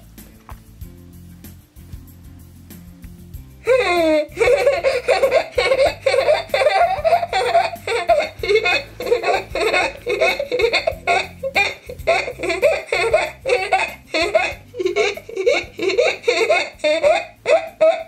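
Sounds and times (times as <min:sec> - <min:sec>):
girls laughing: 0:03.6 - 0:18.0.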